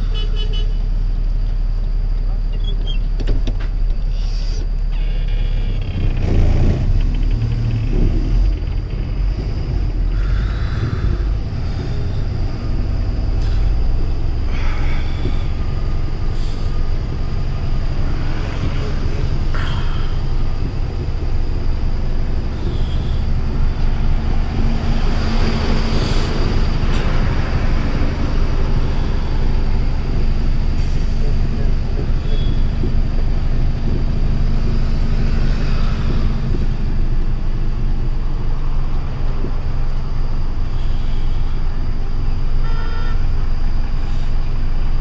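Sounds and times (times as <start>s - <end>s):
diesel truck engine rumble: 0.0s - 45.0s
brief hisses: 4.1s - 4.7s.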